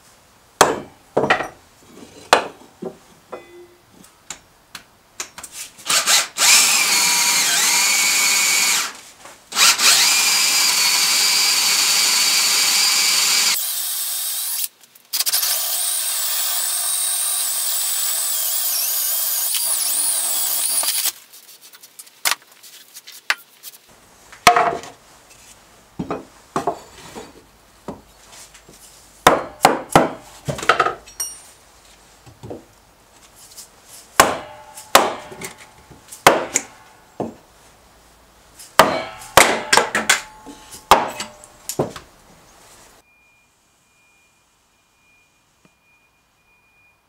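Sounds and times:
mallet knocking on iron: 0:00.6 - 0:01.5
electric drill boring into wood: 0:05.9 - 0:09.0, 0:09.6 - 0:21.1.

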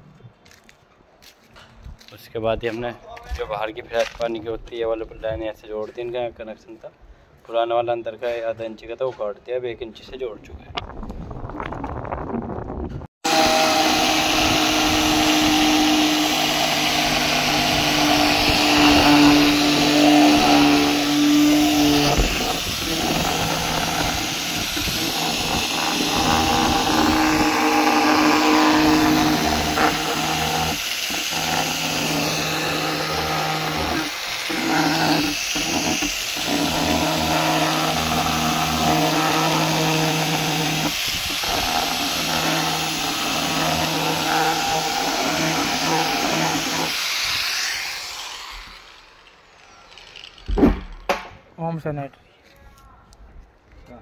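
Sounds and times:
angle grinder cutting plastic: 0:13.2 - 0:51.1.

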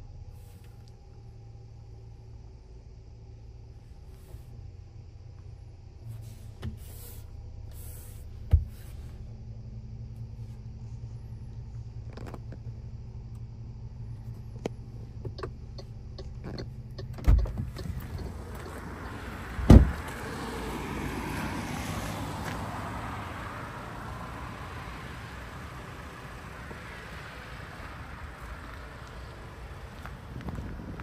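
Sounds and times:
low steady hum: 0:00.0 - 0:21.2
outdoor noise: 0:00.0 - 0:31.0
car door opening thump: 0:08.5 - 0:08.9, 0:17.1 - 0:18.9, 0:19.5 - 0:20.2
car door slamming: 0:17.2 - 0:20.4.

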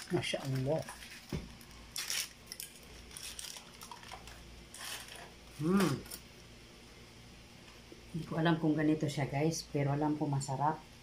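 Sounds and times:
aluminium foil crinkling: 0:00.0 - 0:06.3.

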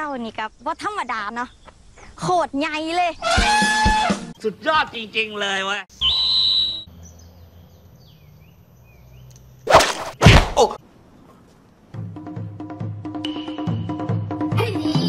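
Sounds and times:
high bird calls: 0:05.9 - 0:09.6.

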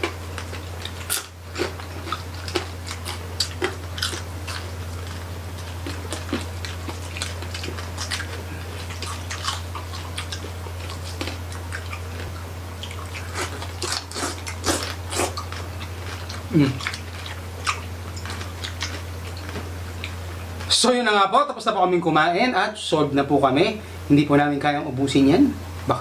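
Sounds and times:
chewing and crunching: 0:00.0 - 0:20.7.

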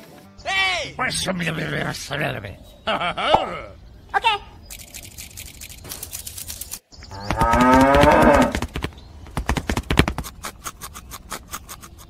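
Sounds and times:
sharp clicks: 0:04.6 - 0:12.0
cow mooing: 0:07.1 - 0:08.6.

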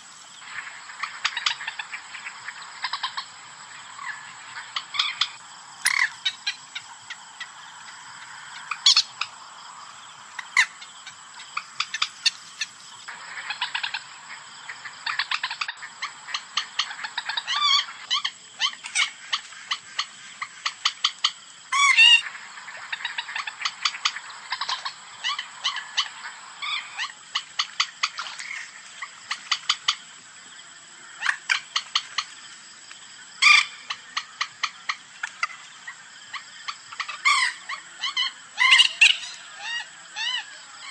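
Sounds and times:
moorhen calling: 0:03.9 - 0:28.6, 0:33.4 - 0:40.9.

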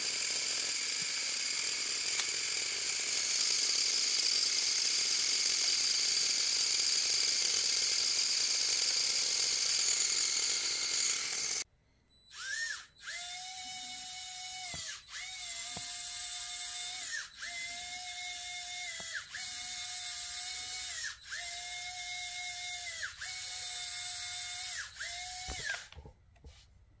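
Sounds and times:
motor whine: 0:09.6 - 0:11.6.

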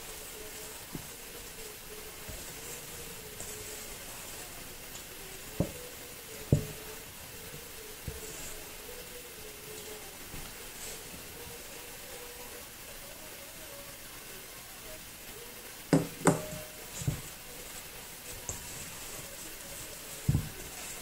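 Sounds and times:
spatula stirring in metal bowl: 0:00.0 - 0:12.3, 0:15.9 - 0:21.0
spatula knocking against metal: 0:15.9 - 0:17.2.

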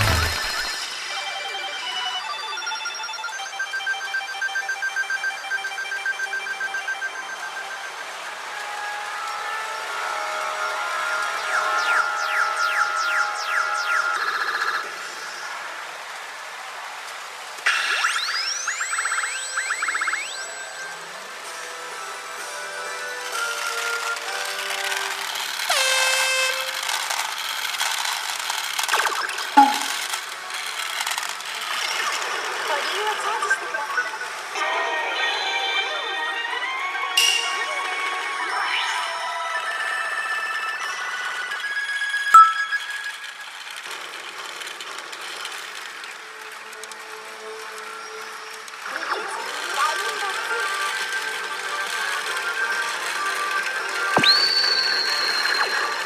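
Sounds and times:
sharp hit with falling tone: 0:00.0 - 0:00.9, 0:29.6 - 0:30.0
electronic ringing tone: 0:00.0 - 0:07.9, 0:18.0 - 0:21.0, 0:29.0 - 0:30.1, 0:42.4 - 0:43.2.

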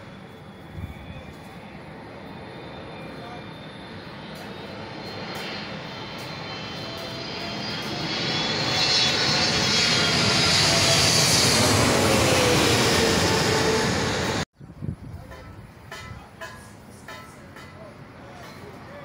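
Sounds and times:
jet plane passing overhead: 0:00.0 - 0:14.5.

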